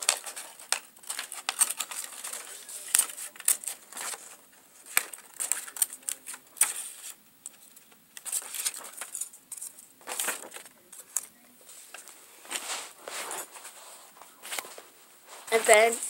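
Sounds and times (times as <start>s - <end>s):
scissors snipping paper: 0.0s - 7.6s.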